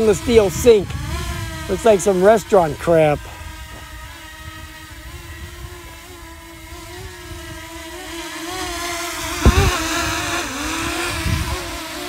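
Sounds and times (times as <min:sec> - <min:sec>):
drone propellers whining: 0:00.0 - 0:12.0
low rumbles: 0:09.3 - 0:10.3
brief thump: 0:09.4 - 0:09.8.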